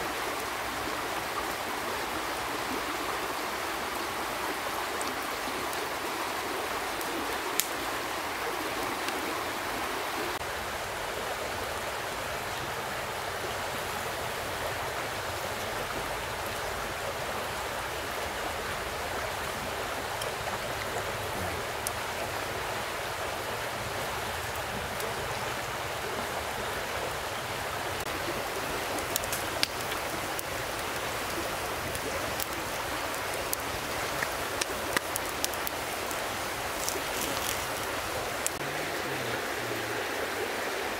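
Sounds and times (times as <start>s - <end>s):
flowing water rushing: 0.0s - 40.9s
campfire crackling and popping: 0.2s - 9.9s, 19.2s - 25.6s, 28.0s - 39.4s.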